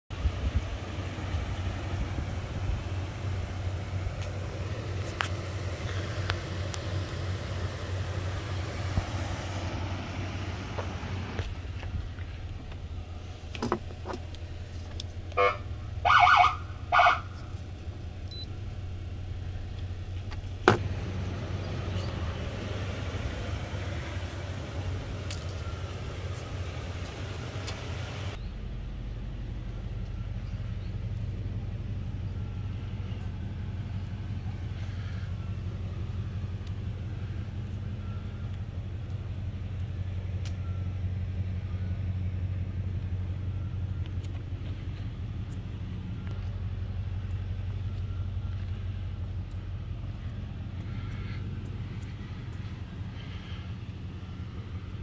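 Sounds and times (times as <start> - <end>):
pickup truck idling: 0.1 - 55.0
siren blasts: 15.4 - 17.4.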